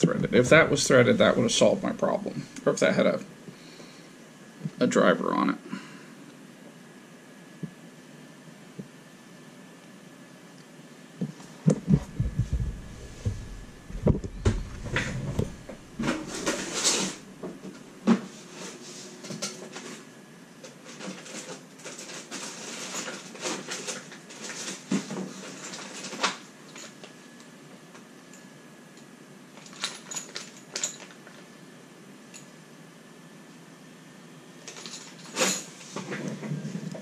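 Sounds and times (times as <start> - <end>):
rummaging at workbench: 11.6 - 27.2, 29.6 - 31.4, 34.7 - 37.0.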